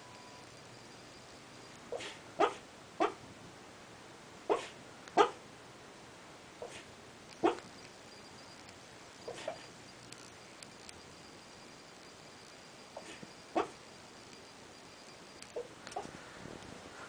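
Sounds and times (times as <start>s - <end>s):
dog barking in its sleep: 1.9s - 3.2s, 4.5s - 5.4s, 6.6s - 7.7s, 9.3s - 9.7s, 13.0s - 13.8s.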